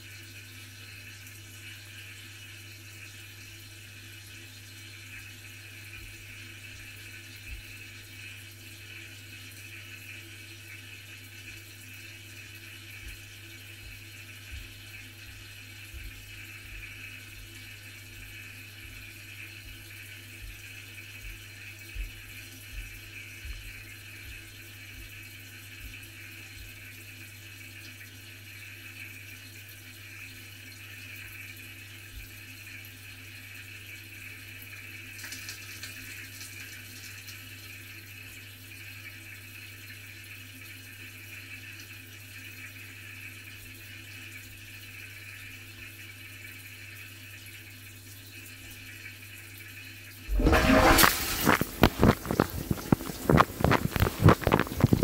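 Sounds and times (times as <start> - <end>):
water filling dishwasher: 0.0 - 55.0
loud water splashing: 50.3 - 55.0
low even hum: 50.3 - 55.0.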